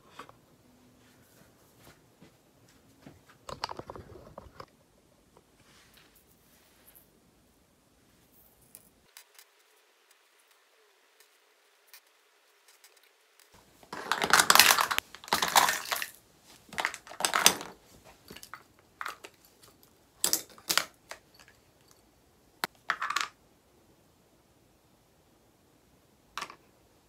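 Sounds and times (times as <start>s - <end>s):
plastic cases clacking: 13.9s - 19.4s.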